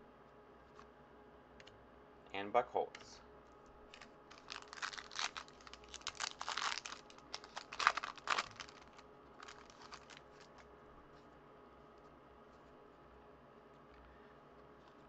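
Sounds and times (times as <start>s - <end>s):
foil wrapper tearing and crinkling: 3.9s - 10.6s.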